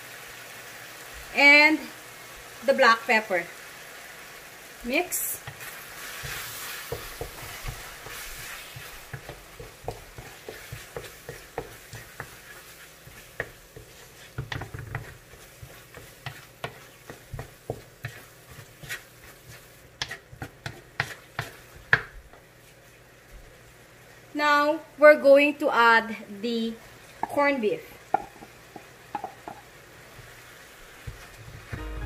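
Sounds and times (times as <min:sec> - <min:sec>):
soft sizzle: 0:00.0 - 0:32.0
utensil scraping and tapping pan: 0:06.2 - 0:22.4, 0:28.1 - 0:29.6.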